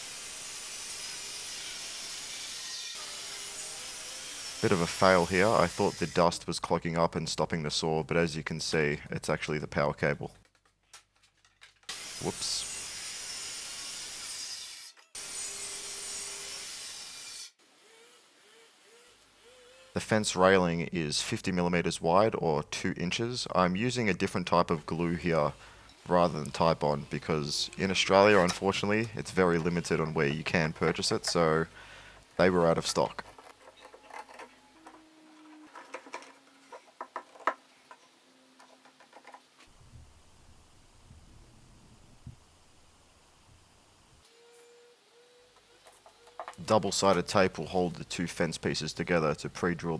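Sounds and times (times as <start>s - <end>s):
circular saw cutting plywood: 0.0s - 6.3s, 11.9s - 20.1s, 26.1s - 31.7s, 32.4s - 37.6s
metal clamps clicking and knocking: 33.1s - 39.4s.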